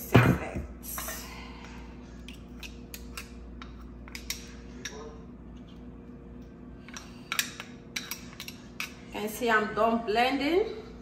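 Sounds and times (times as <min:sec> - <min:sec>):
steady low hum: 0:00.0 - 0:11.0
spoon clicking and scraping on blade: 0:06.9 - 0:09.0.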